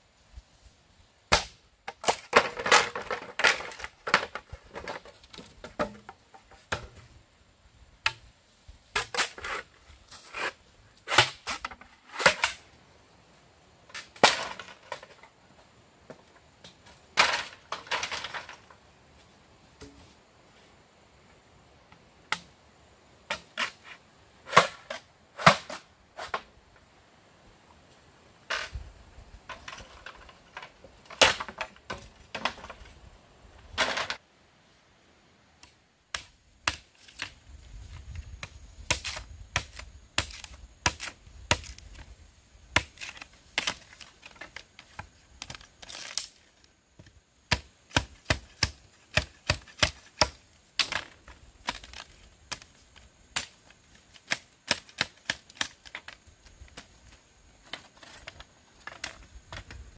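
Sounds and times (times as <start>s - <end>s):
machete chopping bamboo: 1.3s - 4.4s, 11.1s - 12.6s, 36.1s - 37.4s, 38.4s - 42.0s, 42.8s - 44.6s, 47.5s - 52.7s, 53.4s - 56.1s.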